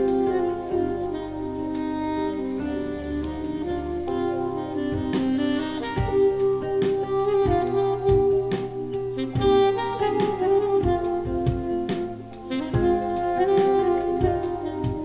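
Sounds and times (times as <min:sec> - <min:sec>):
saxophone notes: 0:00.0 - 0:15.0
smooth jazz over loudspeakers: 0:00.0 - 0:15.0
kick drum thumps: 0:06.0 - 0:06.3, 0:10.8 - 0:11.8, 0:14.2 - 0:15.0.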